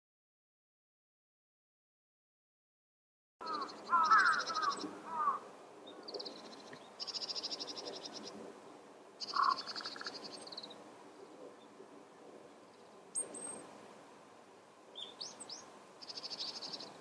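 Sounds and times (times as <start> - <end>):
birds calling: 3.4 - 8.4, 9.2 - 11.7, 14.9 - 17.0.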